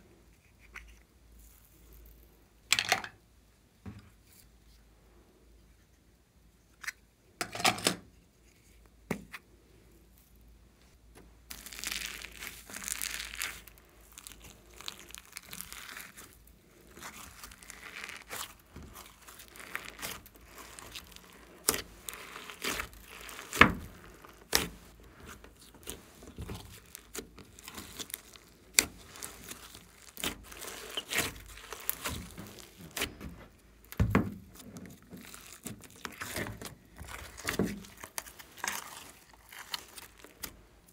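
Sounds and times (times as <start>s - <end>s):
slime squishing and crackling: 11.4s - 40.9s.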